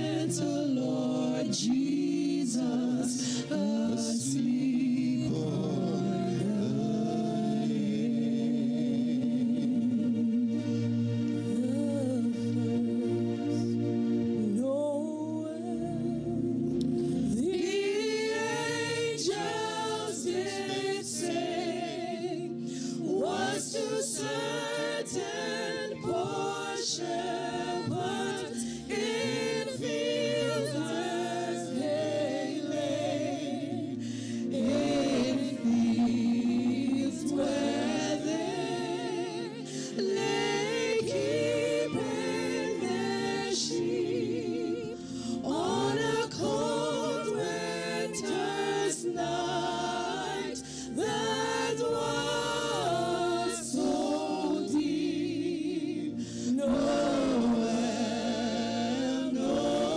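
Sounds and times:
backing singers: 16.8 - 59.9
woman singing lead with vibrato: 32.6 - 48.6.

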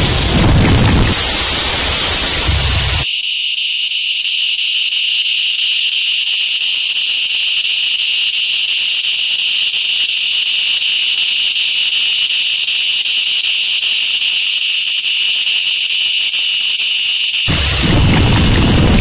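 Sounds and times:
high-pitched hissing noise drone: 0.0 - 3.1, 17.5 - 19.0.

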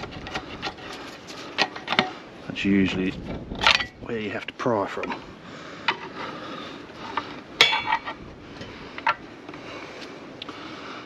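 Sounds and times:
metal tools clinking: 7.6 - 9.2.

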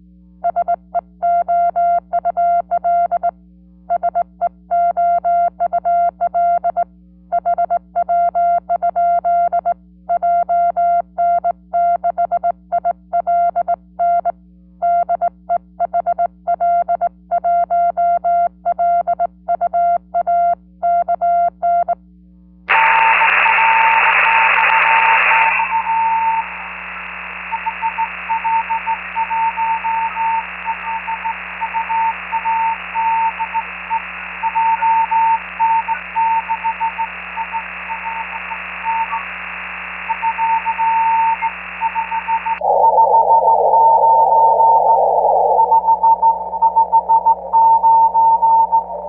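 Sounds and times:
morse code tone: 22.7 - 49.0
radio band-noise hiss: 22.7 - 49.0
low hum: 25.1 - 49.0.

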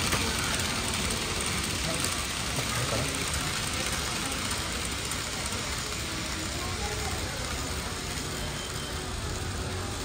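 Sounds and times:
model train hissing on track: 0.0 - 10.0
shop background noise: 0.0 - 10.0.

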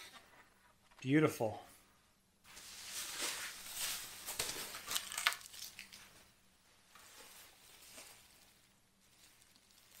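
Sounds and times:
plastic wrap crinkling: 2.5 - 10.0.

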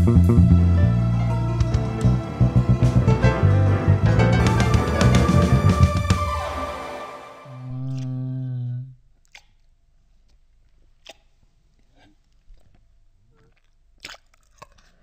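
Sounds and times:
held musical note: 0.0 - 7.8
grapes crunching being eaten: 9.2 - 15.0.

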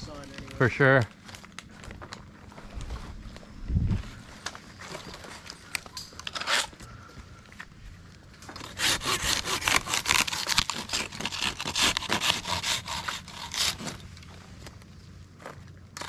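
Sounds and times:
hand saw cutting wood: 8.5 - 14.0.

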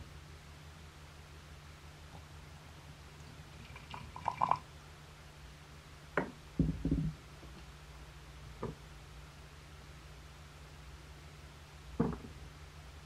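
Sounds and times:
glass knocks: 12.0 - 12.4.

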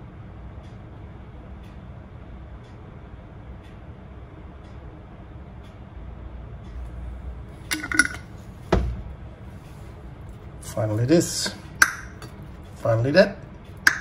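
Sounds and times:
low background hum: 0.0 - 14.0
tableware clinking: 7.7 - 8.3.

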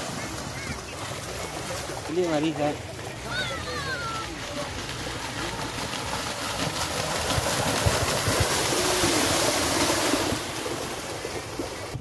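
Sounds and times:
faint voices: 0.0 - 6.7
mud and water splashing: 0.0 - 12.0.

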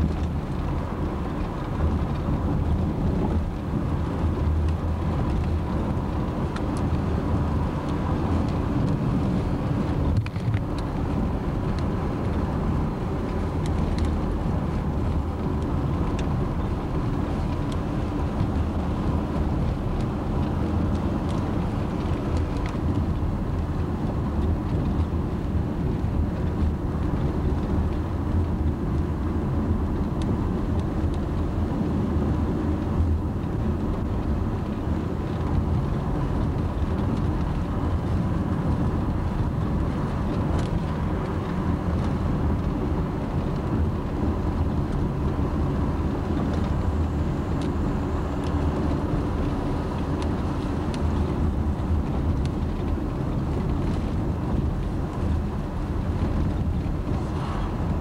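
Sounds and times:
car engine and tyre noise: 0.0 - 58.0.

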